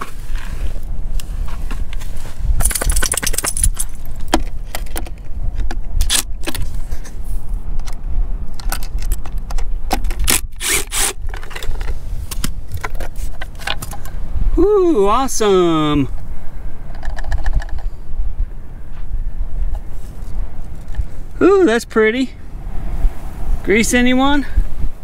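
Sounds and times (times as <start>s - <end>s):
metal nuts and socket clinking: 2.6s - 5.0s.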